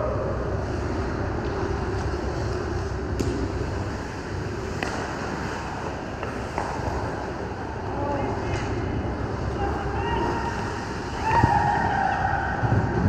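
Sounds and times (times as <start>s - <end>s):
arena noise rumble: 0.0s - 13.0s
hockey stick hitting puck: 4.8s - 5.1s.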